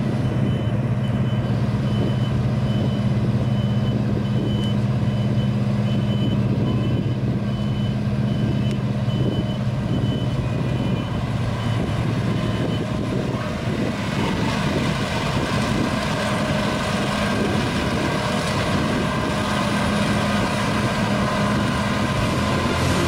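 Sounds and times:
combine harvester engine drone: 0.0 - 23.0
threshing machinery rushing: 11.2 - 23.0.

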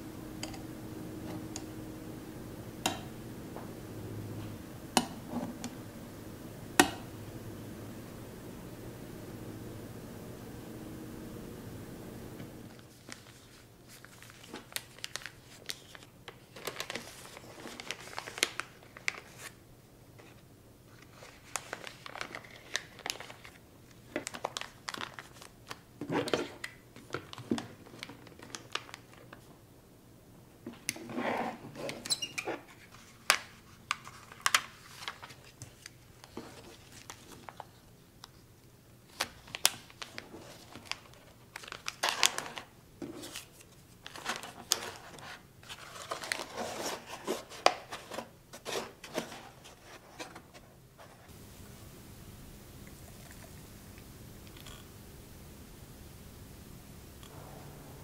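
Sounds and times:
plastic bags crinkling: 12.7 - 19.6, 21.0 - 29.5, 39.1 - 49.8.

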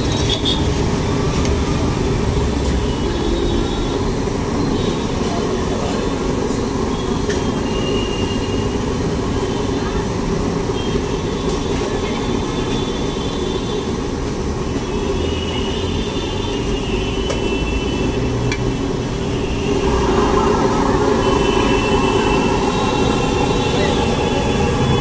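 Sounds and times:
low traffic rumble: 17.8 - 25.0.

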